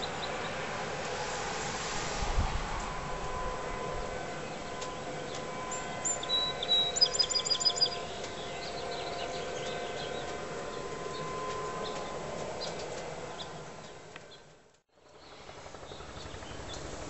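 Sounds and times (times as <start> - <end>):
songbird chirping and trilling: 5.2 - 14.5.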